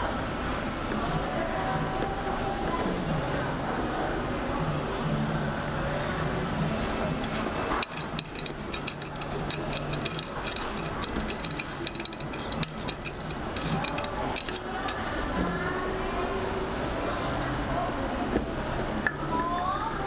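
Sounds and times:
metal clicks and rattles: 0:07.0 - 0:15.2.

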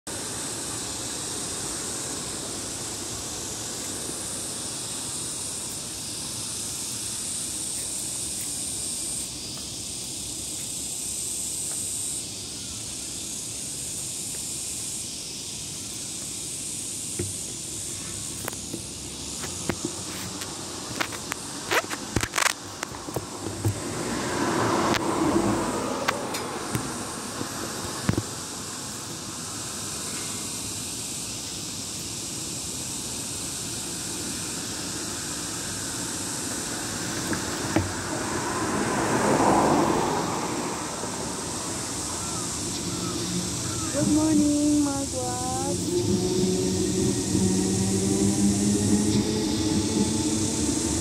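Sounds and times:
high buzz of insects: 0:00.1 - 0:51.0
low street rumble: 0:17.1 - 0:30.5, 0:33.4 - 0:51.0.

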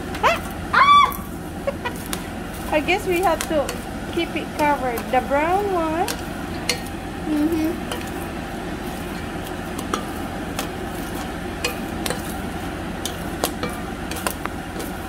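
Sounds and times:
popcorn clicks and pops: 0:00.0 - 0:02.4, 0:03.0 - 0:05.3, 0:09.3 - 0:15.0
spatula stirring popcorn in a pot: 0:00.0 - 0:15.0.

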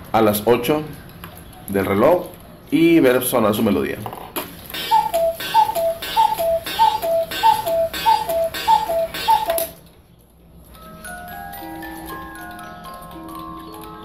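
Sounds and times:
cuckoo clock call: 0:04.7 - 0:09.8, 0:10.8 - 0:14.0
music box melody: 0:04.8 - 0:09.8, 0:10.7 - 0:14.0.

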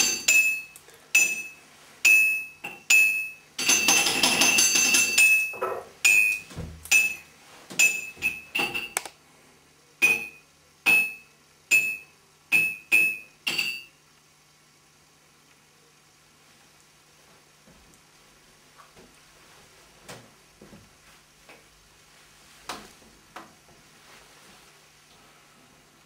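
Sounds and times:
glassy struck notes: 0:00.0 - 0:07.2.

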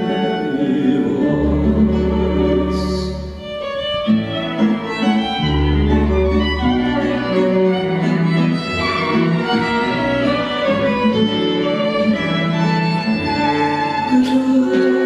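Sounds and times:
cello and guitar: 0:00.0 - 0:15.0
double bass held notes: 0:00.0 - 0:15.0
violin melody: 0:00.0 - 0:15.0.

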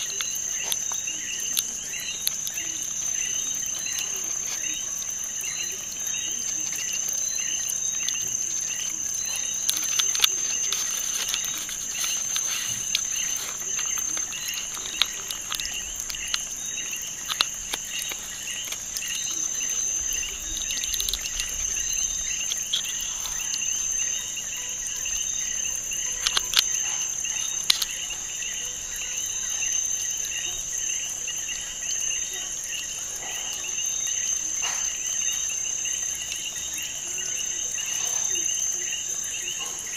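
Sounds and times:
sharp clicks: 0:00.0 - 0:24.2, 0:25.0 - 0:28.2
insect chirping trill: 0:00.0 - 0:39.9.

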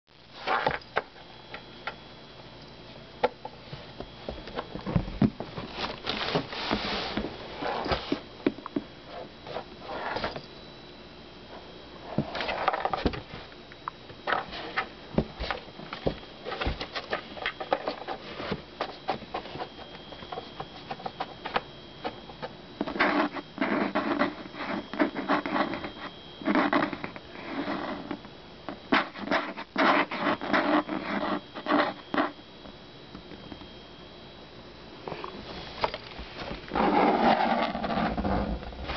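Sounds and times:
kitten scratching cardboard box: 0:14.3 - 0:28.2, 0:28.9 - 0:32.4, 0:36.7 - 0:38.9.

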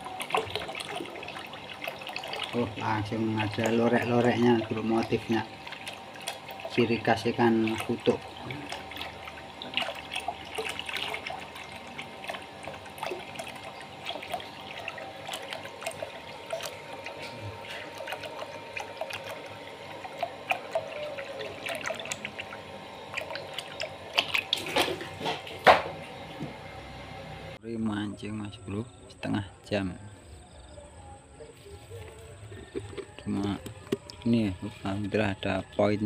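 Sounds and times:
water trickling into plastic basin: 0:00.0 - 0:26.6, 0:32.1 - 0:35.9
fish splashing: 0:00.0 - 0:26.8.

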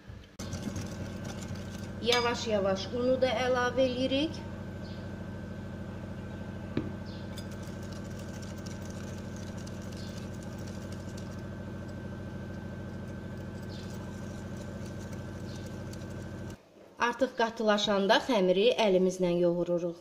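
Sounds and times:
steady hum: 0:00.0 - 0:17.0
whisk stirring batter in glass bowl: 0:00.4 - 0:02.1, 0:07.3 - 0:16.6
whisk knocking against bowl: 0:00.4 - 0:02.3, 0:07.3 - 0:12.0, 0:13.0 - 0:16.6.

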